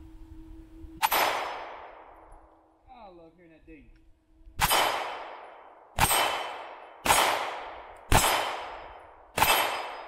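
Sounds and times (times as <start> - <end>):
pistol shots: 1.0 - 2.2, 4.6 - 10.0.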